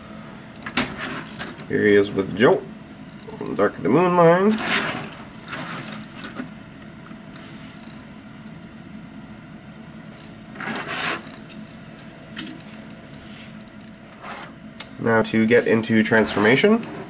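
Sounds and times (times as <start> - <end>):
plastic scraping on tabletop: 10.6 - 11.4.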